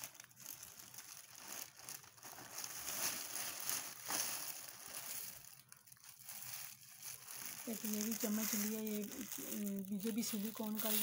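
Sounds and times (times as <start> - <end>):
plastic bags rustling: 0.0 - 11.0.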